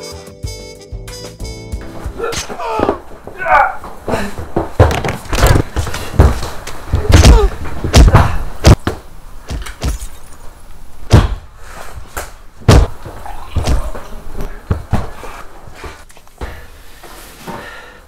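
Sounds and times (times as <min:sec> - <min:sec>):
loud thuds and knocks: 0:04.4 - 0:10.1, 0:11.1 - 0:11.5, 0:12.6 - 0:13.0.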